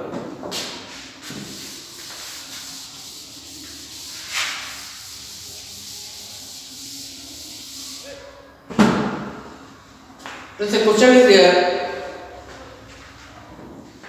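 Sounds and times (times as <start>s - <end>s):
duster rubbing chalkboard: 0.6s - 8.2s.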